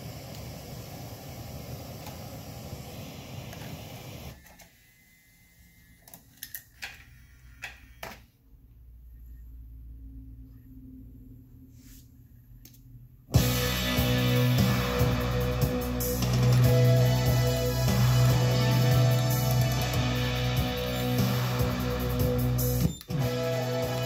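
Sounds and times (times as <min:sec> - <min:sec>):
hiss: 0:00.0 - 0:04.3
disc spinning hum: 0:13.3 - 0:24.0.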